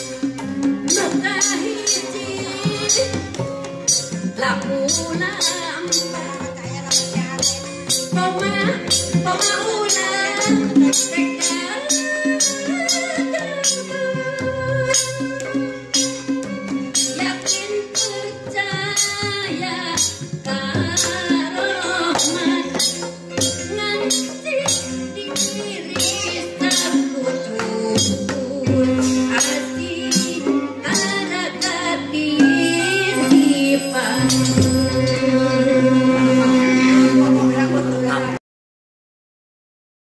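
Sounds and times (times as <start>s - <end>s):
hand drums: 0.0s - 37.6s
woman singing into microphone: 0.8s - 3.4s, 4.2s - 15.8s, 17.0s - 38.4s
plucked zither: 32.2s - 36.1s.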